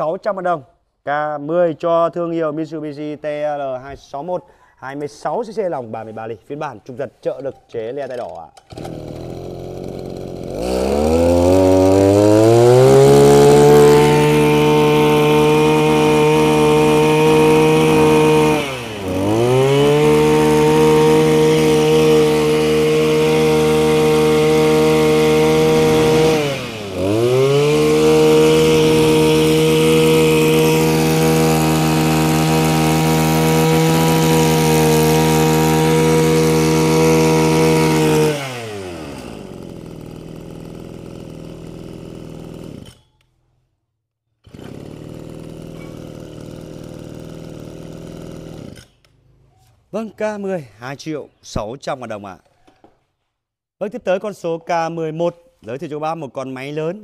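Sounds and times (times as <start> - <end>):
brush cutter engine revving: 8.1 - 43.2, 44.4 - 49.4.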